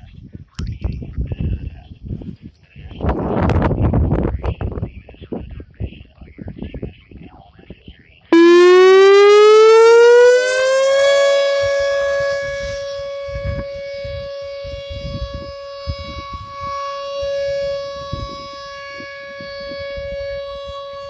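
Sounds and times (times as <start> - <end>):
rotating warning siren: 8.4 - 21.0.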